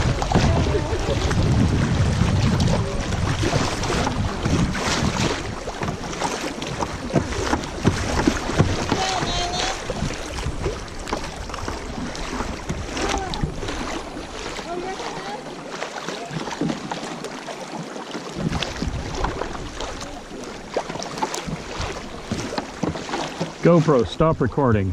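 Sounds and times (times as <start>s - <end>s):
wind rumble on microphone: 0.0s - 14.5s, 18.4s - 20.3s
water splashing around kayak: 0.0s - 24.9s.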